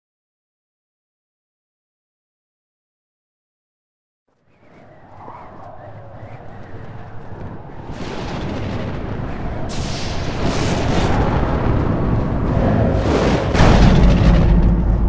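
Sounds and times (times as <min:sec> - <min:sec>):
thunder rumble: 0:04.5 - 0:15.0
sharp thunder cracks: 0:05.6 - 0:15.0.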